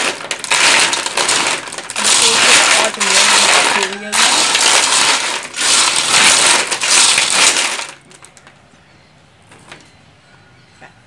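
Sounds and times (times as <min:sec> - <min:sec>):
shells clattering in metal pot: 0:00.0 - 0:08.0.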